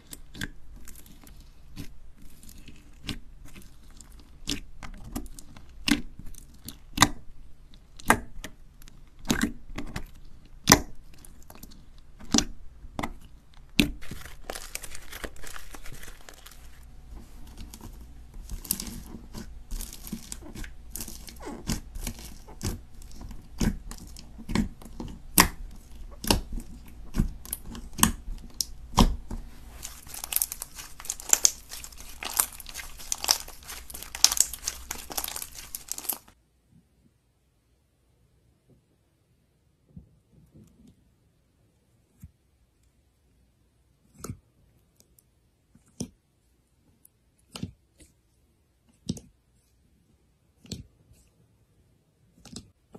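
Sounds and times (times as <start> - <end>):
bead slime popping and clicking: 29.8 - 36.3.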